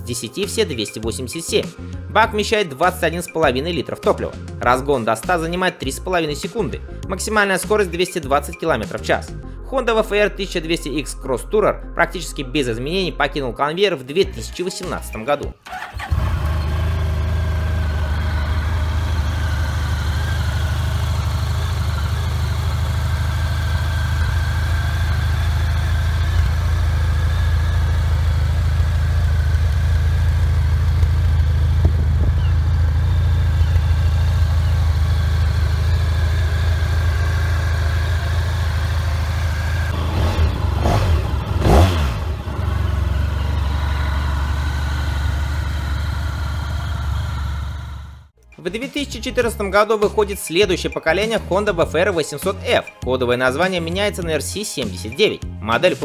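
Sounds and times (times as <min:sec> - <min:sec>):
motorcycle engine idling: 0:15.7 - 0:48.3.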